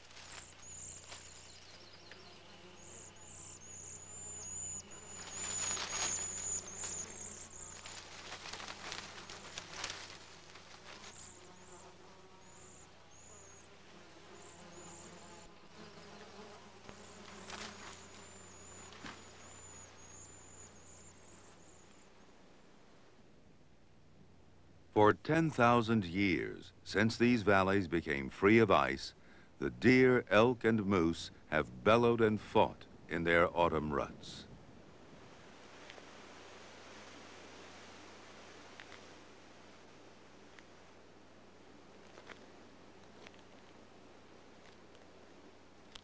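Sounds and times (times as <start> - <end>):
insects chirping: 0.0 - 22.3
antlers scraping brush: 5.1 - 11.4.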